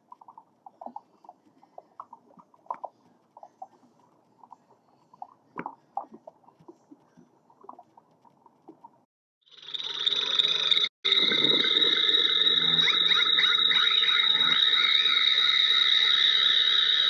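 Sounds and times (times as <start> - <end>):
sea turtle chirps and clicks: 0.0 - 9.0.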